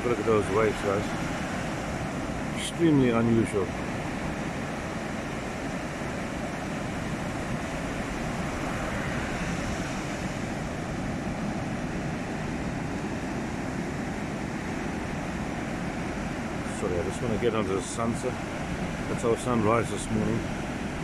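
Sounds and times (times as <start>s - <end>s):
ocean waves breaking: 0.0s - 21.0s.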